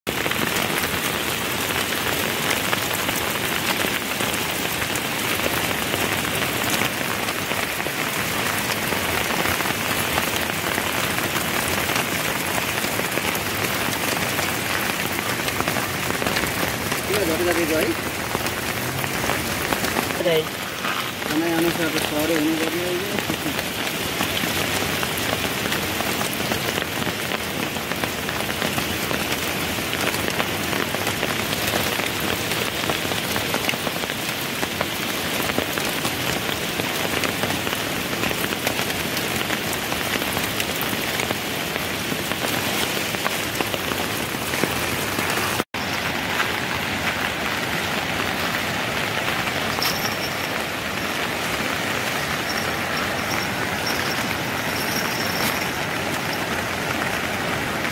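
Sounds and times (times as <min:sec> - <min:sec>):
steady rain falling: 0:00.1 - 0:57.9
river rushing: 0:00.4 - 0:27.9, 0:40.8 - 0:57.9.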